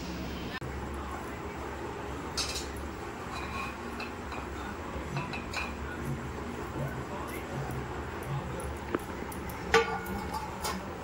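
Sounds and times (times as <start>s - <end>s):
spoon clinking and scraping a metal pot: 2.4s - 6.1s, 9.0s - 11.0s.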